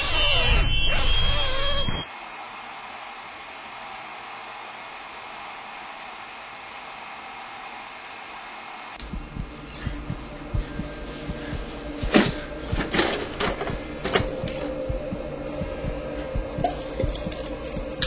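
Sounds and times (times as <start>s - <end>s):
fast low thuds: 9.0s - 12.9s, 14.8s - 17.9s.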